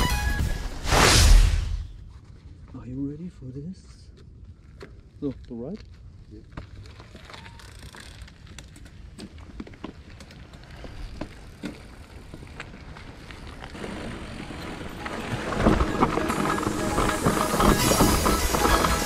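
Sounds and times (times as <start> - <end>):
tyres rumbling on dirt trail: 4.4 - 19.0
bike clicks and rattles: 4.6 - 19.0
rushing noise: 13.8 - 19.0.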